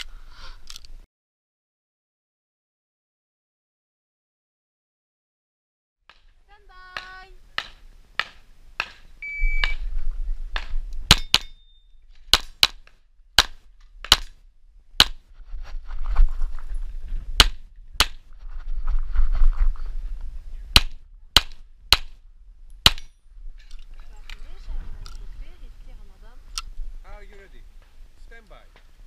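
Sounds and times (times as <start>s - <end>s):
wind rumble on camera: 9.7s - 11.1s, 15.3s - 21.4s, 22.5s - 27.1s.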